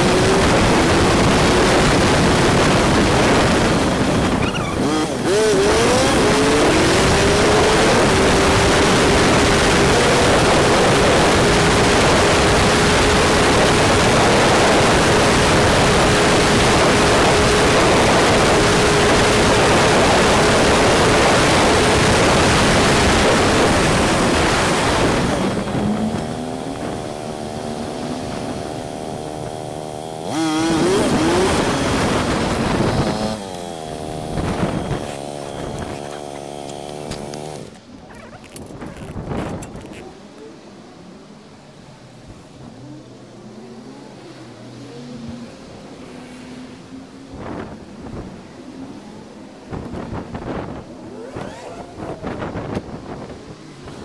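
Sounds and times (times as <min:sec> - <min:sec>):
motorcycle engine running: 0:00.0 - 0:40.0
wind and road rush: 0:00.0 - 0:54.0.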